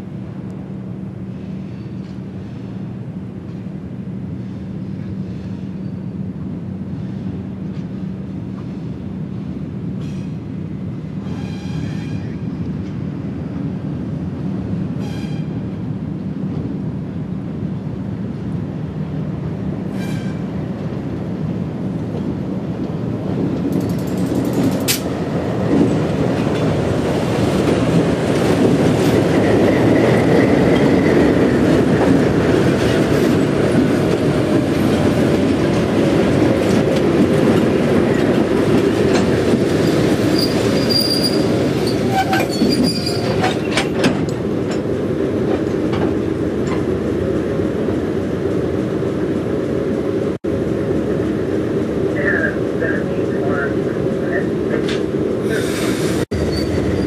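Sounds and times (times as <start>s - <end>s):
rumble of train wheels: 0.0s - 57.0s
wheels clanking over rail joints: 22.9s - 49.0s
wheel flanges squealing: 39.8s - 44.0s, 56.4s - 57.0s
diesel locomotive engine running: 43.4s - 57.0s.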